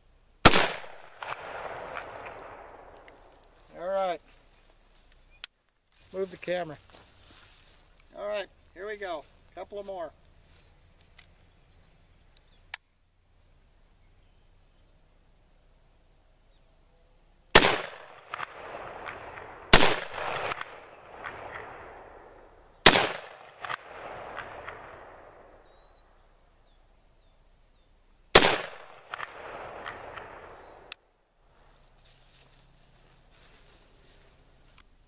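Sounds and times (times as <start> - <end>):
rifle shots with echo: 0.4 - 3.4, 17.5 - 25.6, 28.3 - 30.9.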